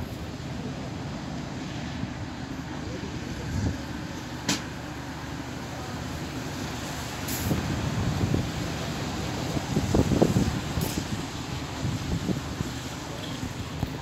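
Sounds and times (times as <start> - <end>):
locomotive rumbling: 0.0 - 14.0
wind buffeting microphone: 7.0 - 14.0
short hiss: 7.2 - 7.6.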